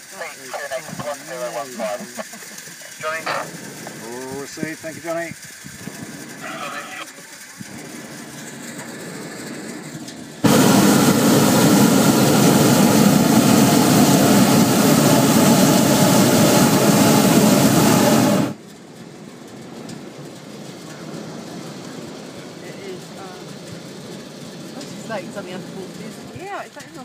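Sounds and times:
steady hiss: 0.0s - 10.9s
propane burner blast: 0.0s - 26.6s.

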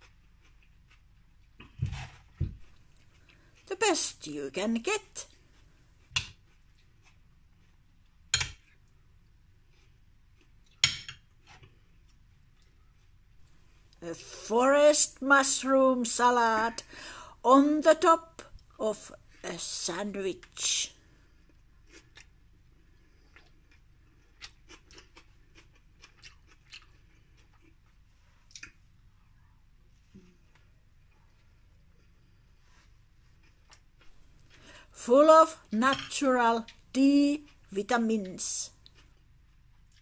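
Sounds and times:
person chewing food: 0.0s - 3.7s, 5.3s - 14.0s, 21.0s - 28.9s, 30.2s - 35.0s, 38.8s - 40.0s.

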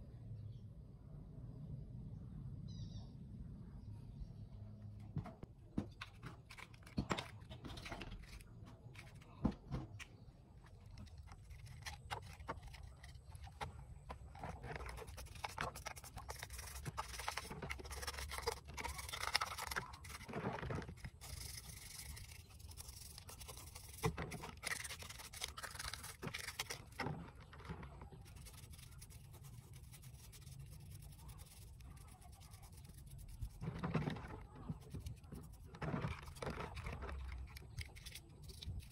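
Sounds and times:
toothbrush scrubbing in water: 10.7s - 38.9s.

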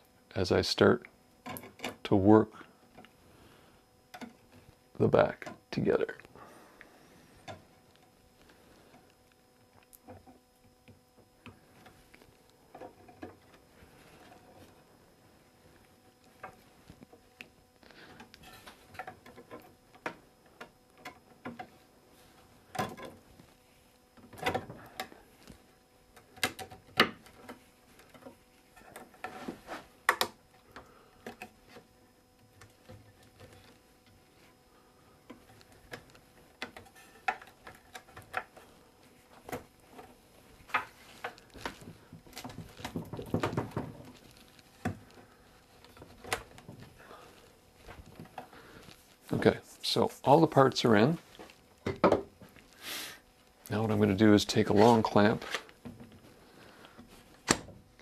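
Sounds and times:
wooden parts knocking and clicking: 40.7s - 44.2s.

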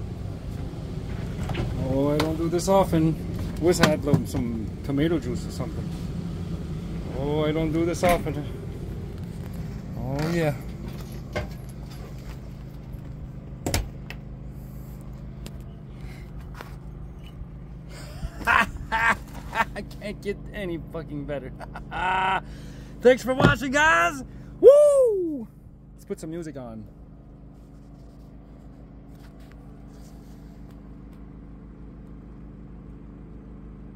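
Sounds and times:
generator humming: 0.0s - 26.0s.

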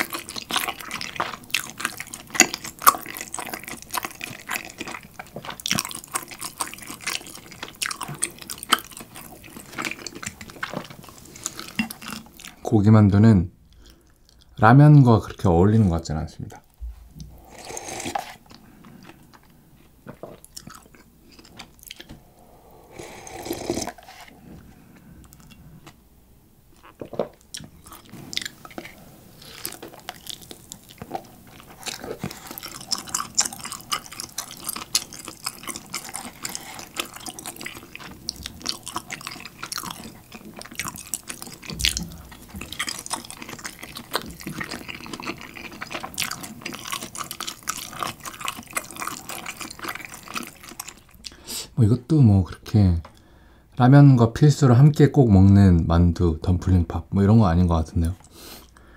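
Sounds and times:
noodles chewed with wet slurps: 0.0s - 12.6s, 27.6s - 51.4s
broth sipped and swallowed: 16.9s - 19.5s, 26.8s - 51.4s.

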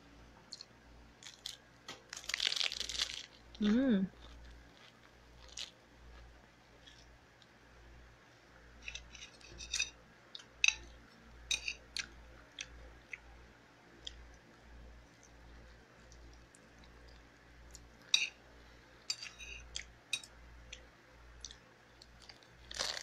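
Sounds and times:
low steady hum: 0.0s - 23.0s
person chewing food: 4.1s - 7.5s, 10.3s - 13.3s, 19.1s - 23.0s.

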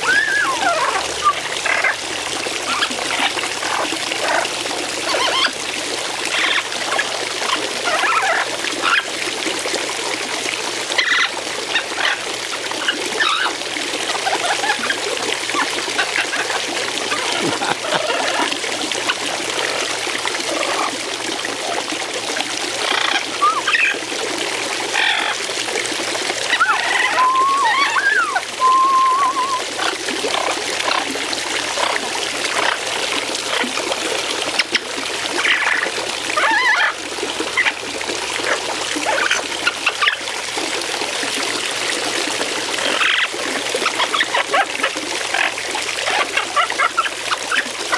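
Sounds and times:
fountain water trickling and splashing: 0.0s - 47.9s
whistled bird notes: 26.6s - 29.7s.

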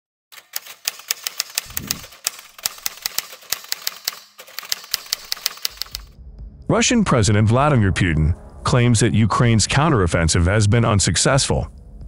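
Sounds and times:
typewriter key clicks: 0.4s - 6.1s.

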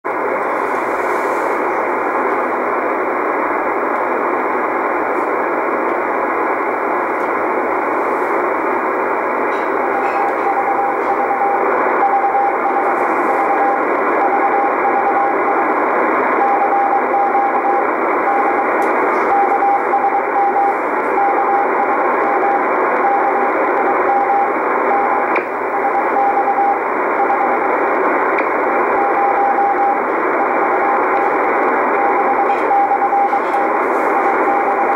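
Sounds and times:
radio static hiss: 0.1s - 34.9s
morse code tone: 9.4s - 34.9s.

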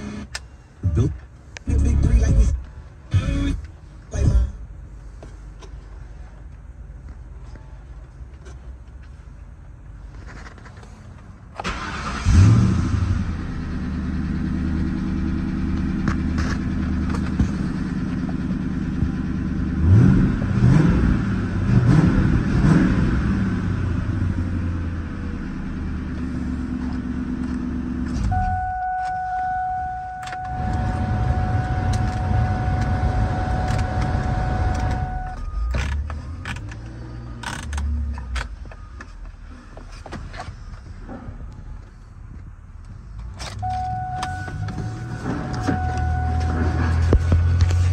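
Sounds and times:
car engine starting and idling: 0.0s - 47.9s
engine revving: 11.7s - 15.7s, 19.7s - 24.7s.

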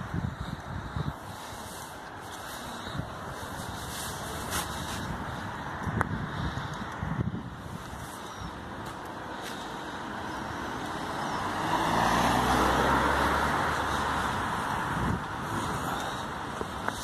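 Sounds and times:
car driving past: 11.0s - 14.9s.

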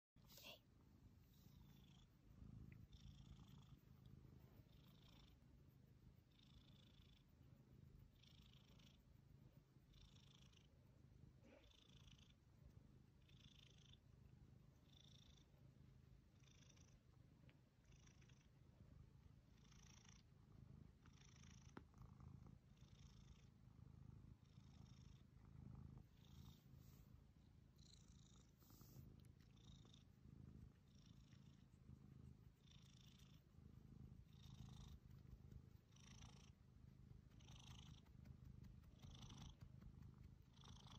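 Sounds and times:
cat purring: 0.2s - 40.9s
soft hiss: 0.2s - 40.9s.

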